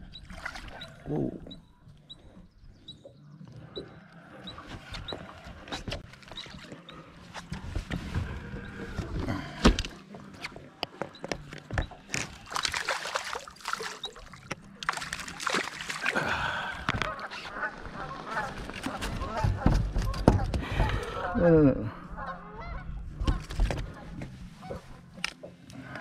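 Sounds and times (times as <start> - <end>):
fish splashing in water: 12.2 - 17.2.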